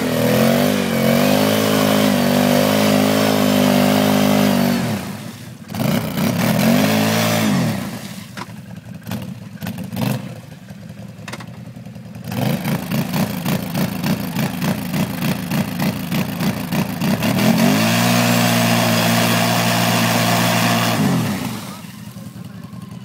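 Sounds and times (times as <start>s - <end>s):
quad bike engine revving: 0.0s - 23.0s.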